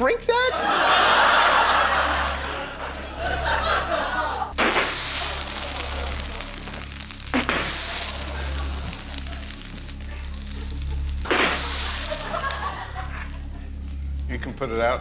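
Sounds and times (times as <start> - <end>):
fire crackling: 0.9 - 15.0
fire flaring with loud whoosh: 4.5 - 15.0.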